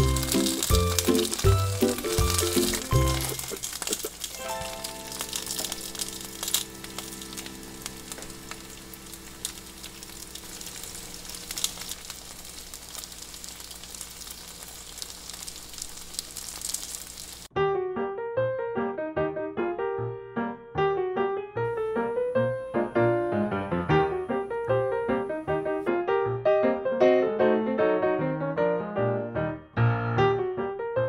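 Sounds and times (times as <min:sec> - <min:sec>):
piano music: 0:00.0 - 0:12.1, 0:17.5 - 0:31.0
rice cakes sizzling in a pan: 0:00.0 - 0:17.5
soft background music: 0:04.4 - 0:10.2.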